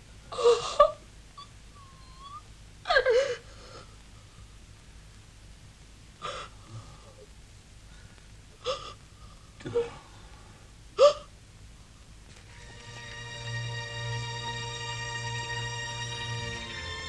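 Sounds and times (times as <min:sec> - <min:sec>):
woman sobbing: 0:00.3 - 0:03.9.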